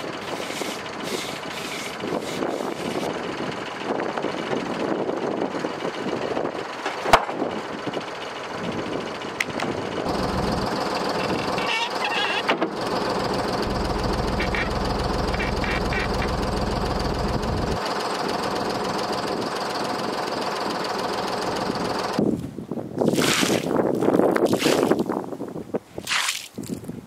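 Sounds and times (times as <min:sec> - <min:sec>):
diesel engine rumbling: 0:00.0 - 0:25.6.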